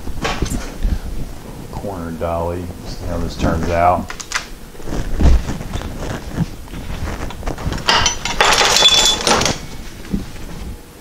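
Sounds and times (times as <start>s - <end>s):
metal clattering and scraping: 5.4s - 9.8s.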